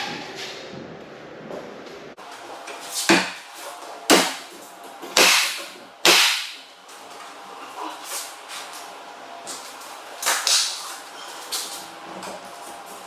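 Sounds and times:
nail gun firing: 0:05.2 - 0:06.6.

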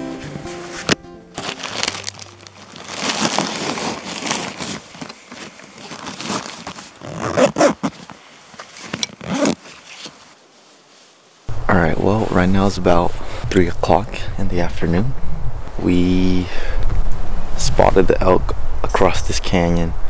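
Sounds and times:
acoustic guitar music: 0:00.0 - 0:02.8
backpack fabric rustling: 0:00.0 - 0:11.5.

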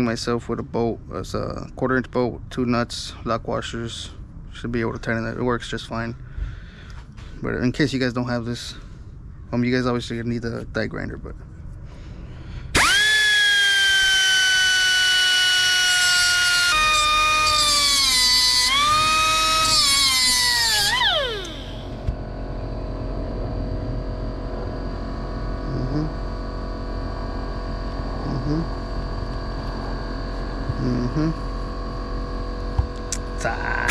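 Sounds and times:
steady low hum: 0:00.0 - 0:33.9
air die grinder whining: 0:12.8 - 0:22.1.

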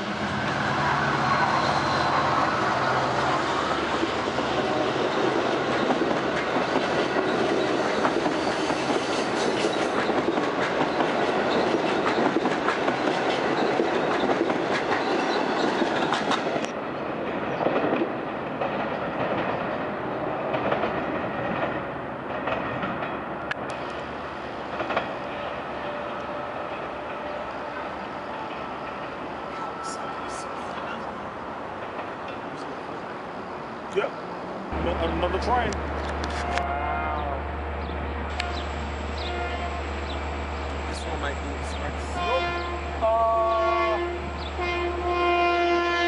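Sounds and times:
distant train rumble: 0:00.0 - 0:46.0.

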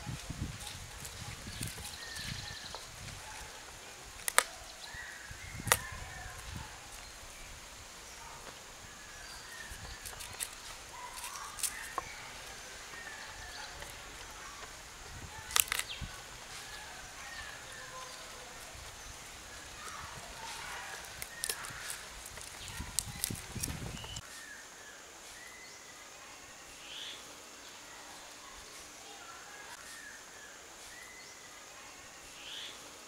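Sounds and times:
birds chirping: 0:00.0 - 0:24.3.

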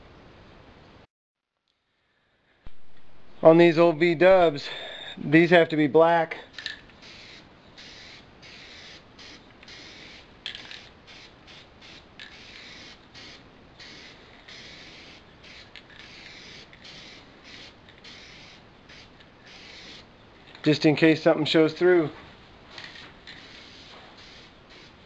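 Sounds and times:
aerosol spray can hissing: 0:06.6 - 0:20.1, 0:22.8 - 0:25.0.

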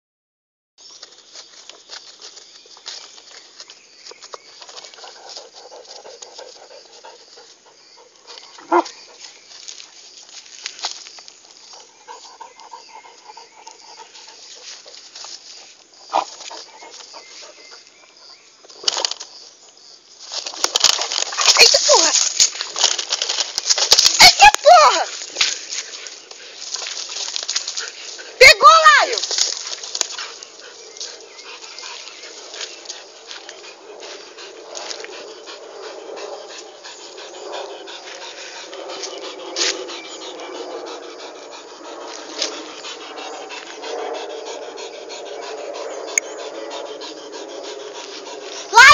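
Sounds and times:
dog panting: 0:04.8 - 0:09.4, 0:11.7 - 0:15.1, 0:29.2 - 0:48.9.

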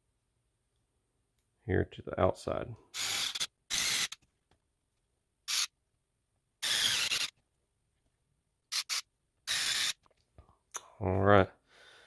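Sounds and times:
electric screwdriver whirring: 0:03.0 - 0:04.2, 0:05.5 - 0:05.7, 0:06.6 - 0:07.3, 0:08.7 - 0:10.0.

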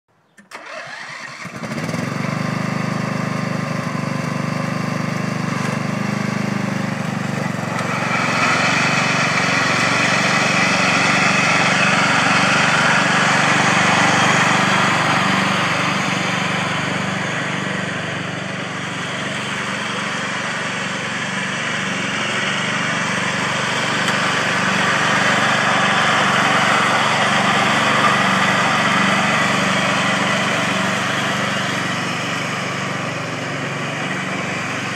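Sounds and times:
riding mower engine running: 0:00.4 - 0:34.9.

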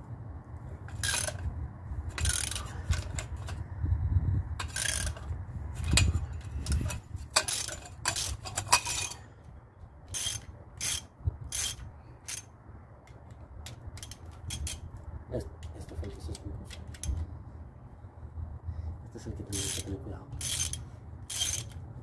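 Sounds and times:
socket ratchet clicking: 0:02.1 - 0:03.6, 0:04.6 - 0:09.2, 0:10.1 - 0:12.5, 0:13.7 - 0:14.9, 0:20.4 - 0:21.8.

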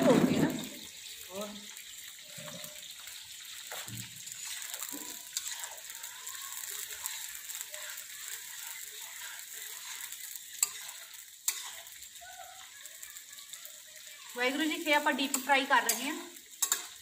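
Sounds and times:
food sizzling in hot oil: 0:00.0 - 0:17.0
metal spatula scraping pan: 0:02.2 - 0:12.8, 0:14.2 - 0:17.0
spatula clinking against pan: 0:08.5 - 0:12.1, 0:15.1 - 0:17.0.

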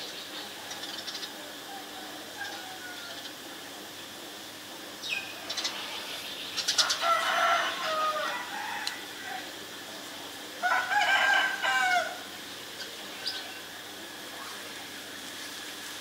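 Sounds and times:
rooster crowing: 0:01.8 - 0:03.2, 0:06.7 - 0:09.6, 0:10.6 - 0:12.3.

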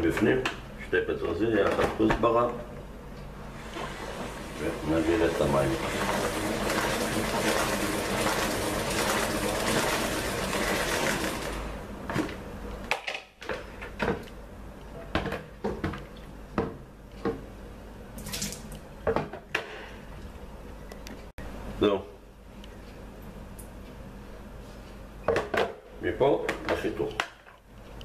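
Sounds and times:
water pouring from salad spinner: 0:03.7 - 0:11.7.

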